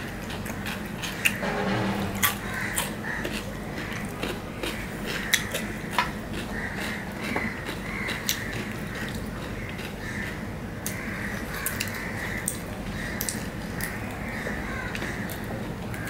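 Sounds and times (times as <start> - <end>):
steady low hum: 1.1 - 4.0.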